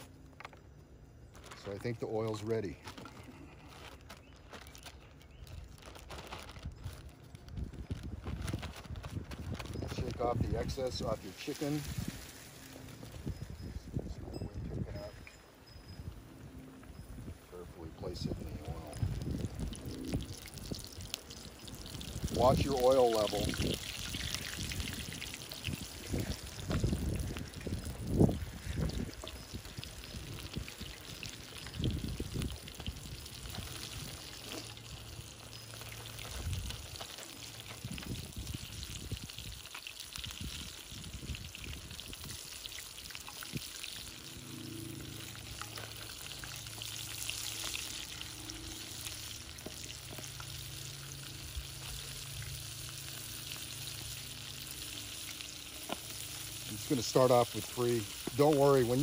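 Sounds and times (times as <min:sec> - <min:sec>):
chicken sizzling in hot oil: 0:09.2 - 0:13.2, 0:18.0 - 0:59.0.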